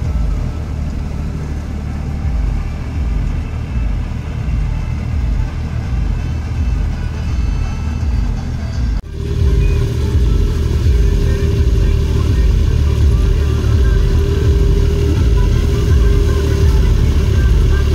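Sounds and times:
reaper drone: 0.0s - 17.9s
steady tonal hum: 0.0s - 17.9s
tractor engine rumble: 0.0s - 17.9s.

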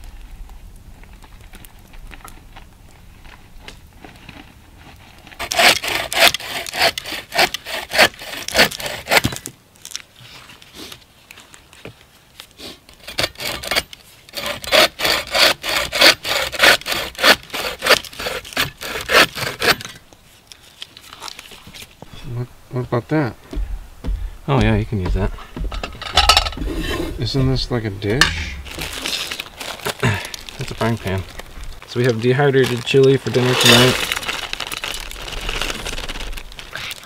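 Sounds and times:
hand saw rasping through wood: 5.4s - 9.3s, 13.0s - 20.0s.

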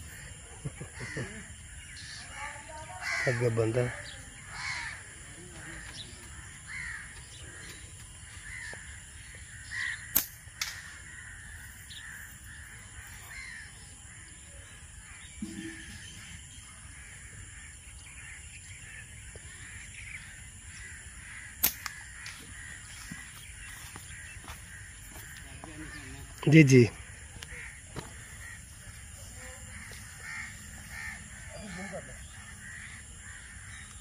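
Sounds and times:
crows cawing: 0.0s - 34.0s
sharp snaps: 10.0s - 10.9s, 21.6s - 22.3s.

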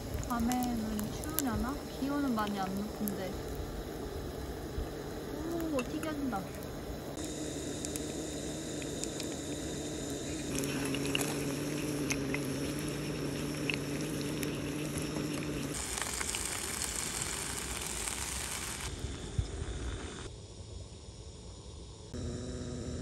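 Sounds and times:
small crackles in oil: 0.0s - 3.7s, 10.2s - 18.9s
oil sizzling and bubbling: 0.0s - 20.3s.

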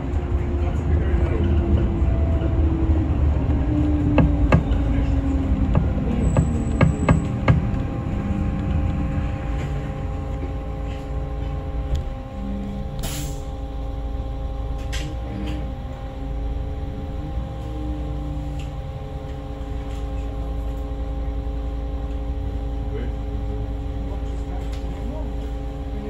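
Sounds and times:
bus engine rumble: 0.0s - 26.0s
electrical hum: 0.0s - 26.0s
air brakes hissing: 13.0s - 13.5s.

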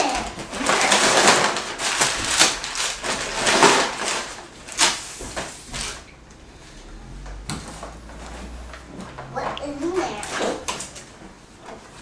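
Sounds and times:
tissue paper and gift bag rustling: 0.0s - 6.1s.

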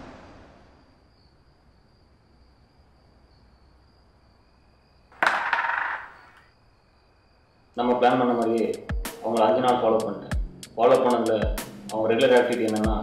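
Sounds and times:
coins clattering on wooden board: 5.2s - 6.4s
striker clacking against coins: 5.2s - 6.4s.

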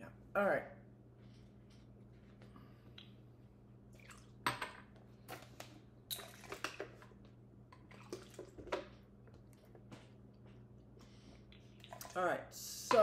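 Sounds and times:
water pouring: 3.9s - 4.4s, 6.1s - 7.0s, 7.8s - 8.7s, 11.6s - 12.2s.

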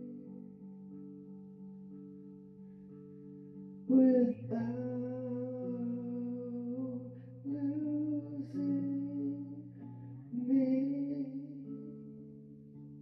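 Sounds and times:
person singing long notes: 3.9s - 12.0s.

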